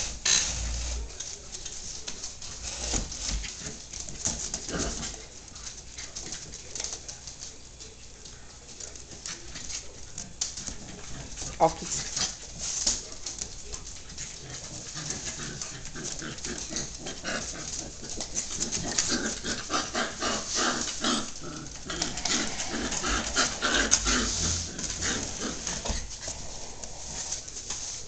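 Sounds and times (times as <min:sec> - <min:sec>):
dogs growling and grunting: 0:00.0 - 0:01.2, 0:02.5 - 0:05.3, 0:13.8 - 0:27.6.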